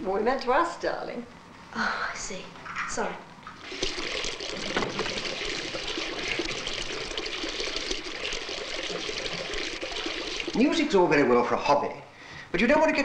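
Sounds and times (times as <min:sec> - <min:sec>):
water running from a tap: 0:02.6 - 0:11.5.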